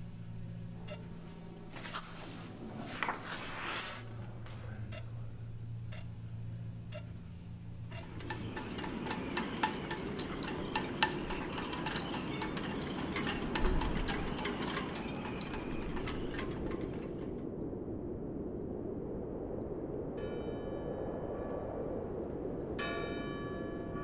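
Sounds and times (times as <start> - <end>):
low rushing noise: 0.0 - 24.0
rapid light clinking: 4.8 - 17.5
bell ringing: 7.9 - 17.2.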